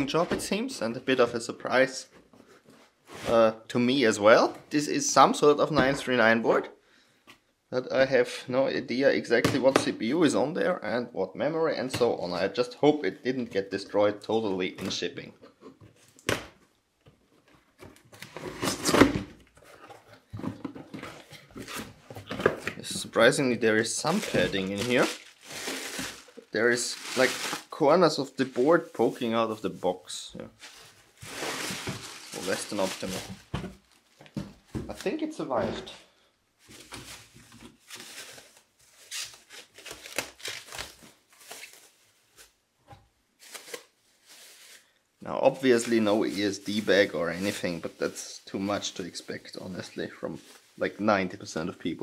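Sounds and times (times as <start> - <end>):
packing tape and cardboard tearing: 18.0 - 19.2, 24.0 - 27.7, 37.0 - 42.0, 43.4 - 44.8
packing material rustling: 21.2 - 27.8, 30.6 - 35.3, 36.6 - 42.6, 43.4 - 44.9, 45.6 - 51.0
plastic bag crinkling: 23.8 - 27.8, 30.7 - 34.2.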